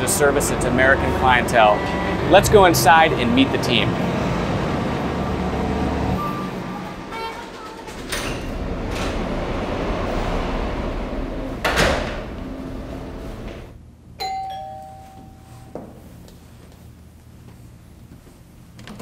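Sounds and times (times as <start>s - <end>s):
street traffic hum: 0.0s - 13.8s
bright bell ring: 14.2s - 15.8s.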